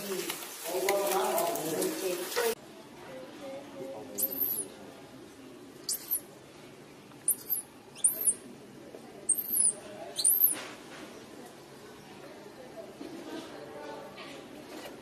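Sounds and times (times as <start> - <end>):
infant monkey squealing: 4.2 - 4.6, 5.9 - 6.2, 7.3 - 8.4, 9.3 - 10.6.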